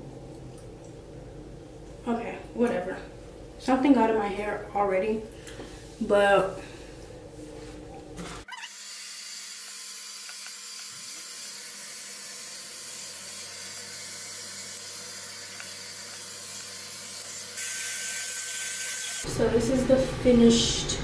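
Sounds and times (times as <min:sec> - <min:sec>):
faint low hum: 0:00.0 - 0:08.4.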